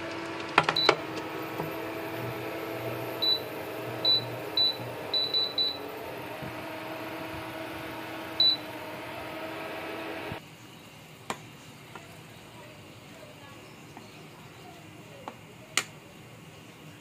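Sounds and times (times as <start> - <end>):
cooker humming: 0.0 - 17.0
short high beeps: 3.2 - 5.9, 8.4 - 8.7.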